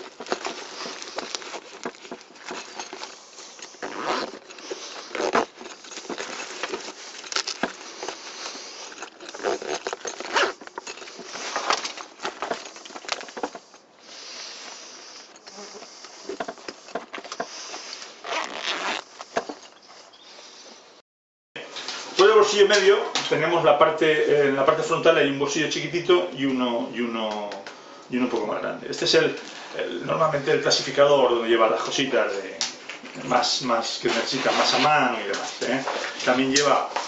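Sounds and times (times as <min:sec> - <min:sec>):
zips being worked: 0:00.0 - 0:13.7, 0:14.5 - 0:19.8
backpack fabric rustling: 0:00.0 - 0:20.2.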